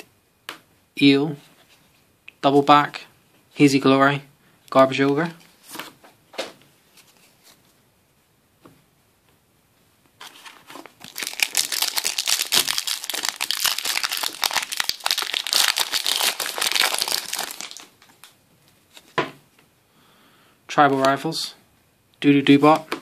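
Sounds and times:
foil wrapper crackling: 0:10.9 - 0:18.3.

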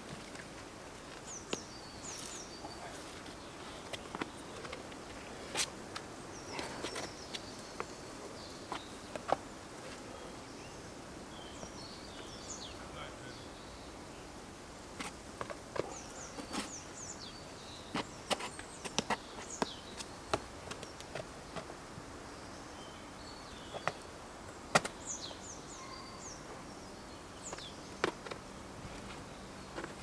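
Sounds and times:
shoes and hands tapping on rock: 0:00.0 - 0:10.0, 0:15.0 - 0:16.8, 0:17.9 - 0:21.8, 0:23.7 - 0:24.0, 0:24.7 - 0:25.1, 0:27.4 - 0:30.0
small birds chirping: 0:01.0 - 0:30.0.

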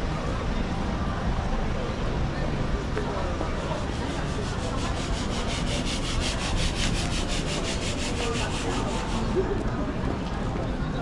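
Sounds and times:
busy street rumble: 0:00.0 - 0:11.0
rhythmic scraping: 0:03.4 - 0:09.5.

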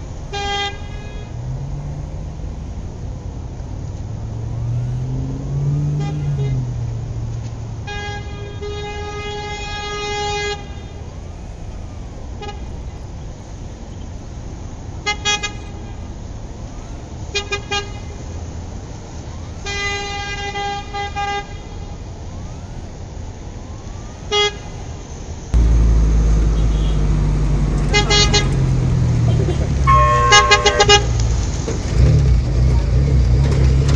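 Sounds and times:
traffic and engine noise: 0:00.0 - 0:33.9
vehicle horn honking: 0:07.9 - 0:10.9, 0:25.6 - 0:28.7, 0:29.3 - 0:31.4.

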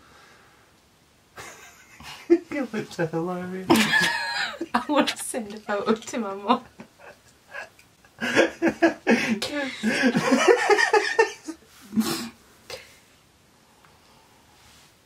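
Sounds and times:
man and woman laughing: 0:01.4 - 0:02.5, 0:03.7 - 0:06.0, 0:06.6 - 0:11.6.

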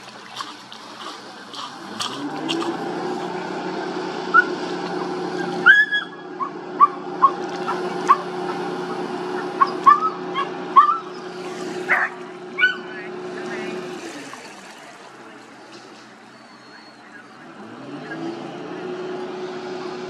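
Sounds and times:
boat engine droning: 0:00.0 - 0:20.0
animal yipping: 0:09.4 - 0:11.3.

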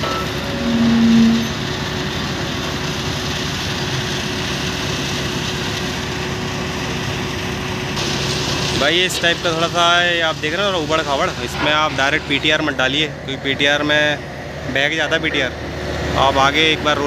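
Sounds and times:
loud low tone: 0:00.0 - 0:01.8
constant machinery whine: 0:00.0 - 0:17.0
excavator running: 0:00.0 - 0:17.0
truck engine running: 0:00.0 - 0:17.0.

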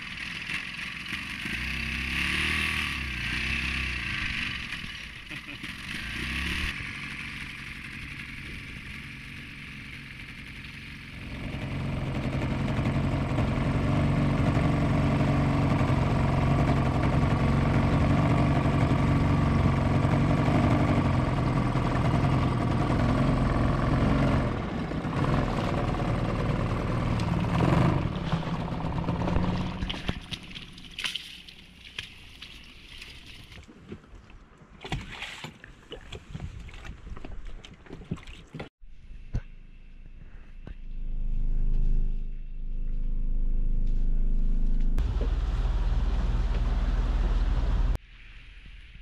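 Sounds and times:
outboard motor running: 0:00.0 - 0:33.6, 0:43.8 - 0:48.0.

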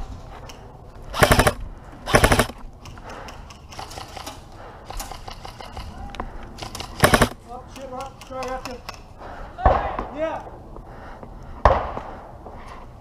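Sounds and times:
airsoft rifle bursts: 0:01.1 - 0:02.6, 0:06.6 - 0:07.4.

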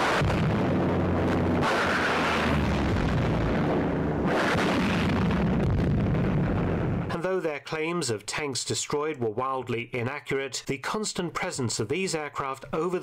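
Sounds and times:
gunfire: 0:00.0 - 0:07.1
low drone: 0:00.0 - 0:07.1
explosions: 0:00.0 - 0:07.2.

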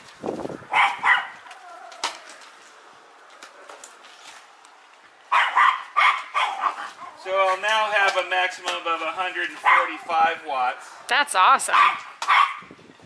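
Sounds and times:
dog barking: 0:00.7 - 0:01.4, 0:05.3 - 0:07.2, 0:09.6 - 0:10.1, 0:11.7 - 0:12.7.

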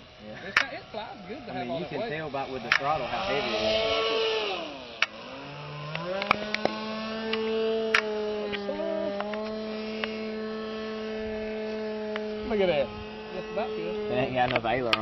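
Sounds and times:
model airplane motor: 0:00.0 - 0:15.0
sharp clicks: 0:05.9 - 0:08.1.

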